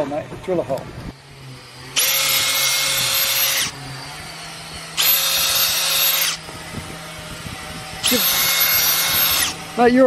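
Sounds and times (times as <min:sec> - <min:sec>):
cordless drill drilling plastic: 0:01.2 - 0:10.0.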